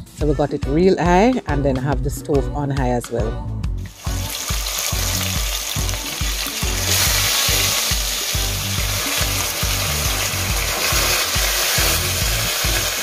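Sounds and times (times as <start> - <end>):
background music bass beat: 0.0 - 13.0
meat sizzling in hot oil: 3.9 - 13.0.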